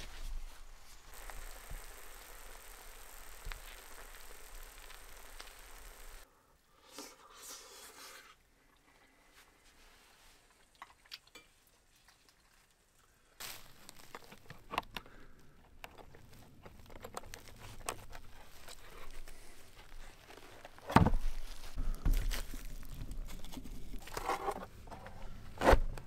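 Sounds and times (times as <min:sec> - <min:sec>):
wooden planks knocking and rustling: 0:20.5 - 0:23.2.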